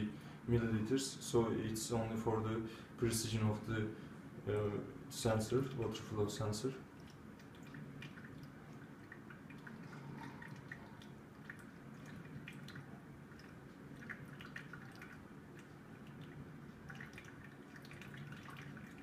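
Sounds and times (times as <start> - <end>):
water dripping and trickling: 5.4 - 19.0.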